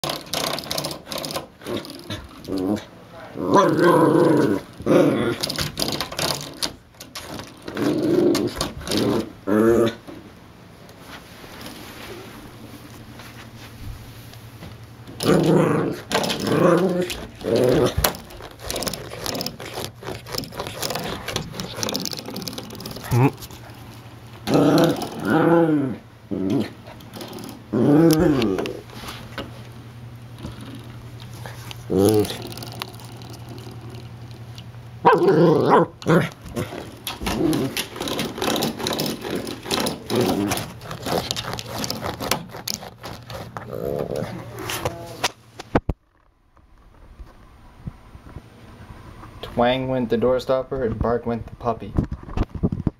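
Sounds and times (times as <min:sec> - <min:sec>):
puppy growling: 0:00.0 - 0:10.1, 0:15.1 - 0:29.2, 0:30.4 - 0:34.2, 0:35.0 - 0:45.3
spring door stopper twanging: 0:04.4 - 0:09.3.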